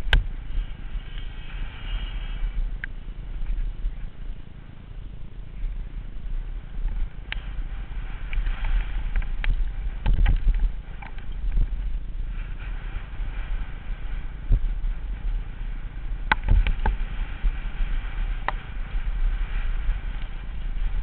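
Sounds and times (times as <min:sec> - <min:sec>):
mountain bike ride rumble: 0:00.0 - 0:21.0
bike knocks and rattles over bumps: 0:06.7 - 0:21.0.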